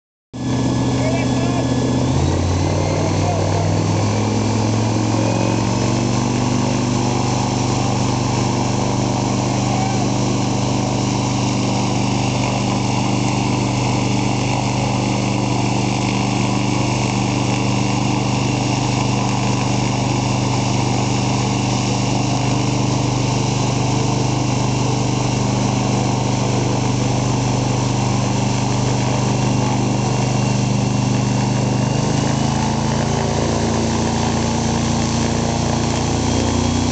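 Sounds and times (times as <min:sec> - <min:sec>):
rushing fan wind: 0:00.4 - 0:36.9
wind machine motor drone: 0:00.4 - 0:36.9.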